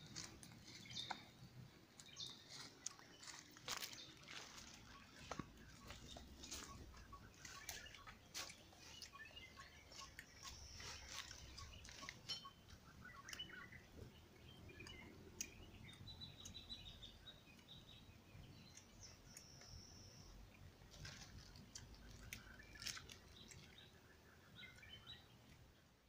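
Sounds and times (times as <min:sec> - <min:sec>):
small clicks and crackles: 0:00.0 - 0:01.3, 0:20.5 - 0:23.9
birds chirping: 0:00.0 - 0:26.0.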